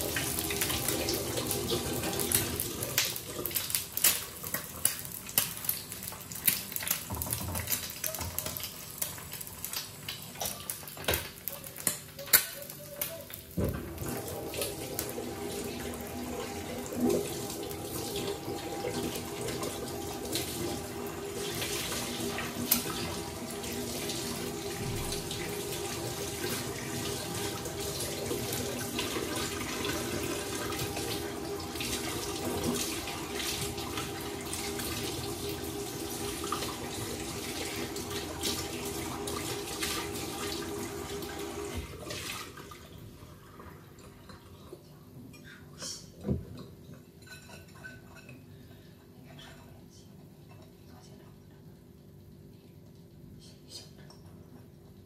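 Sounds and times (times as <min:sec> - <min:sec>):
egg sizzling in a pan: 0:00.0 - 0:41.8.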